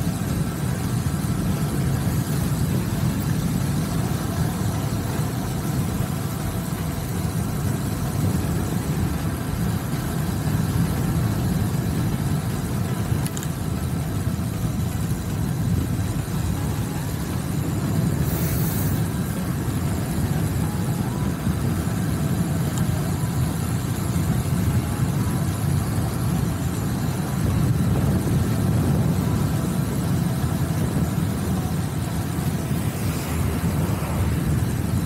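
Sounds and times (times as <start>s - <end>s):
wind rumbling over microphone: 0.0s - 35.0s
brief hiss: 18.2s - 19.0s.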